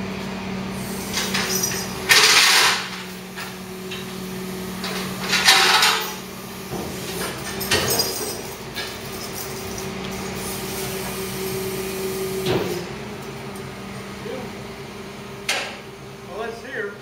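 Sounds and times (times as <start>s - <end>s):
truck engine running: 0.0s - 16.7s
loud air hisses: 0.7s - 1.5s, 10.2s - 12.4s.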